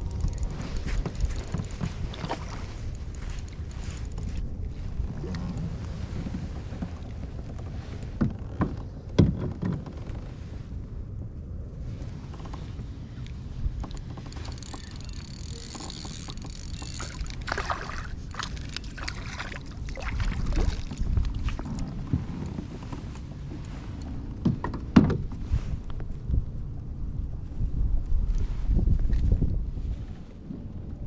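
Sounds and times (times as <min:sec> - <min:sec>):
water lapping at kayak: 0:00.0 - 0:09.4, 0:11.9 - 0:25.8
wind rumble: 0:00.0 - 0:31.0
fishing reel whirring: 0:14.3 - 0:17.6
fish splashing: 0:16.7 - 0:21.0.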